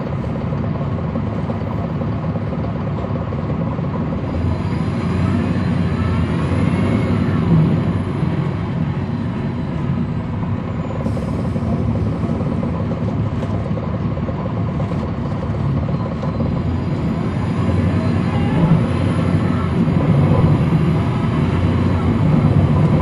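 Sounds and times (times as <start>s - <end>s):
bus diesel engine running: 0.0s - 23.0s.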